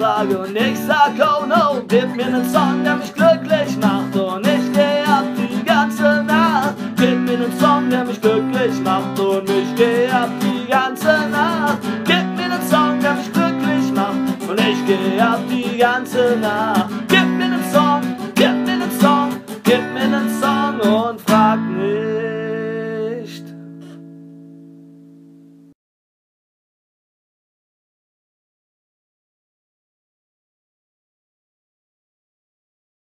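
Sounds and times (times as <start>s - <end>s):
acoustic guitar strumming: 0.0s - 25.8s.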